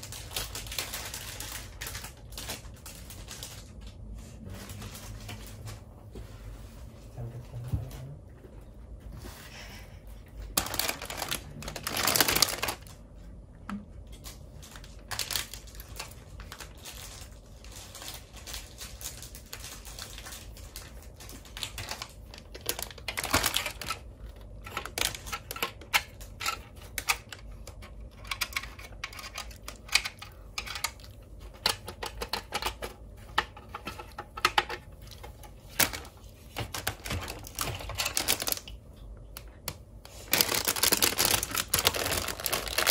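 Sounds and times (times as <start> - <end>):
plastic bags crinkling: 0.0 - 5.9, 10.4 - 13.0, 14.2 - 38.8, 39.4 - 42.9.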